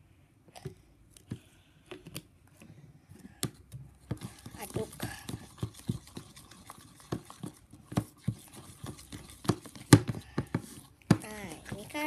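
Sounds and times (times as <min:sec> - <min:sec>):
spoon stirring thick slime: 0:03.3 - 0:12.0.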